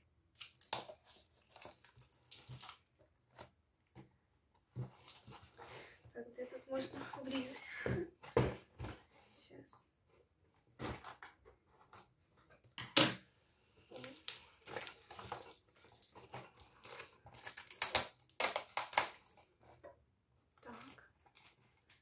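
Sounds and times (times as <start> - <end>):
tape tearing: 14.0 - 19.5.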